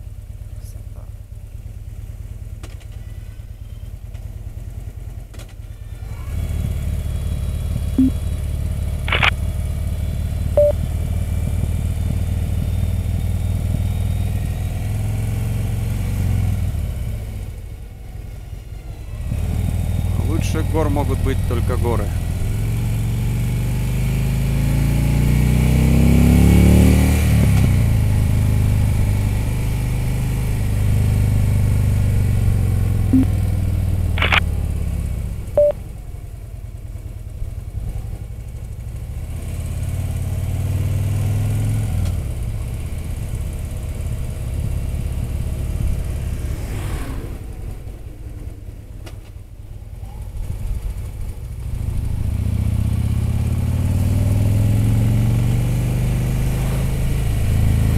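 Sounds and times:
motorcycle engine: 0:00.0 - 0:57.9
brief clicks: 0:09.1 - 0:09.4, 0:34.2 - 0:34.4.

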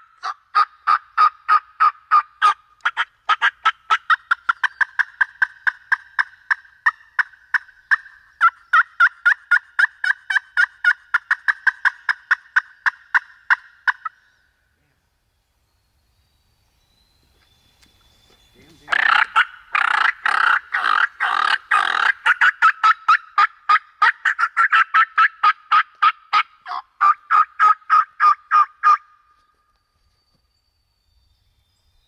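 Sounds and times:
turkey yelps: 0:00.2 - 0:14.1, 0:18.9 - 0:29.1.

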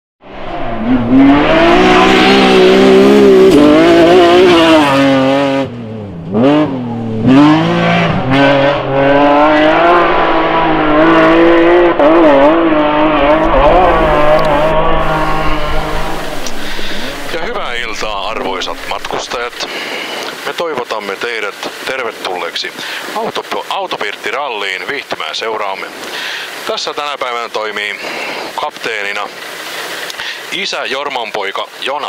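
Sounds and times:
rally car engine revving: 0:00.2 - 0:20.3.

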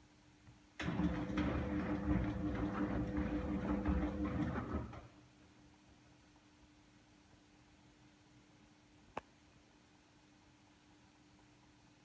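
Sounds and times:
wet laundry churning: 0:00.8 - 0:05.1
washing machine drum humming: 0:00.8 - 0:05.2.

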